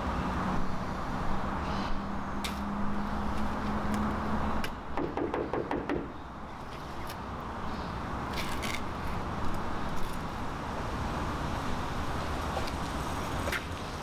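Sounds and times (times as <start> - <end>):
low street hum: 0.0 - 14.0
knuckles knocking on a door: 5.0 - 6.1.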